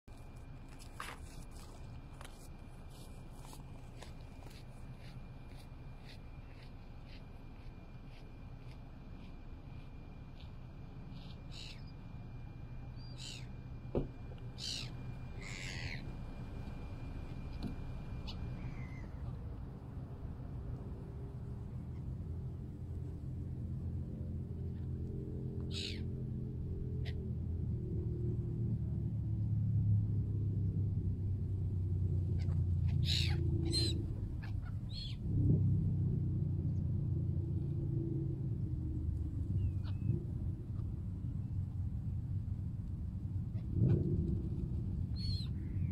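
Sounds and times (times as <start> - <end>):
low steady drone: 0.1 - 45.9
low rumble: 0.2 - 45.9
seagulls calling: 11.2 - 11.9, 13.0 - 13.5, 14.6 - 16.2, 18.2 - 19.4, 25.6 - 26.1, 32.3 - 35.2, 39.6 - 40.2, 45.1 - 45.9.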